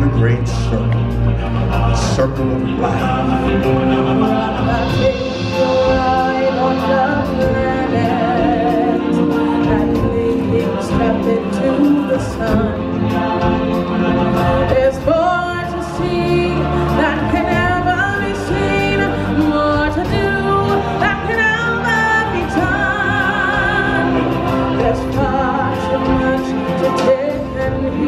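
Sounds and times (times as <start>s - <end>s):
full band playing: 0.0s - 28.0s
people singing: 0.0s - 28.0s.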